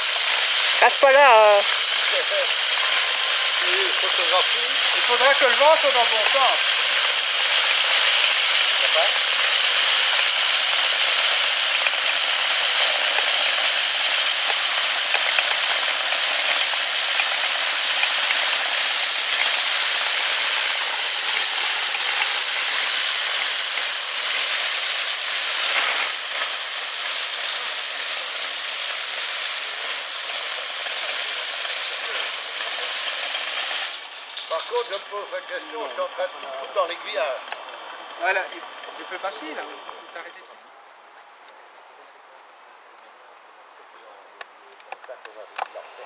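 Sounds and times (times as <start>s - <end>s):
spinning brush scrubbing rails: 0.0s - 35.1s.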